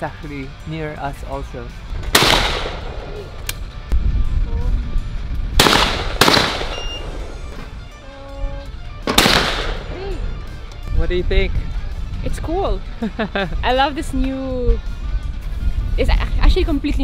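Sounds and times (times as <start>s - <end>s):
shotgun shots: 2.0s - 3.2s, 5.6s - 7.4s, 9.0s - 9.9s.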